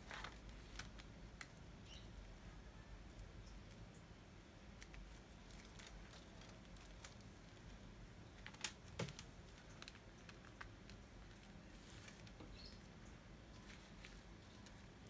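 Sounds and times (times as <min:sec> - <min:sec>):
hands handling plastic bag: 0:00.0 - 0:01.6, 0:04.8 - 0:12.6, 0:13.5 - 0:15.0.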